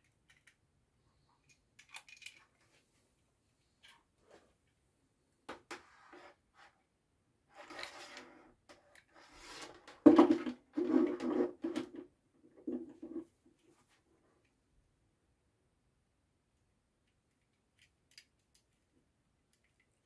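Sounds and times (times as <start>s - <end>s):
plastic clicks: 17.1s - 18.8s.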